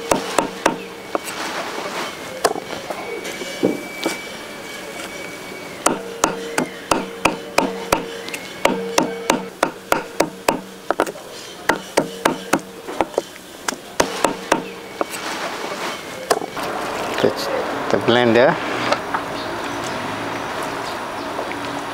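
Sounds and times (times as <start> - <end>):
cleaver chopping meat on wood: 0.0 - 1.3, 2.4 - 2.7, 5.8 - 15.2.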